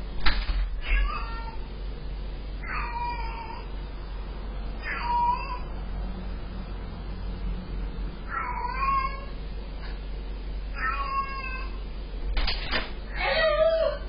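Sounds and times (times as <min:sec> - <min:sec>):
cat meowing: 0:00.8 - 0:01.6, 0:02.6 - 0:03.7, 0:04.8 - 0:05.7, 0:08.3 - 0:09.3, 0:10.8 - 0:11.8.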